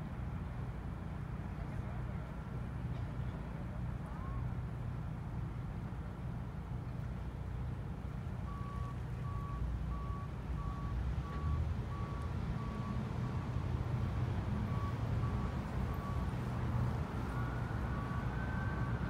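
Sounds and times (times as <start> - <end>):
reversing alarm beeps: 8.5 - 13.5, 14.6 - 16.4, 17.2 - 19.0.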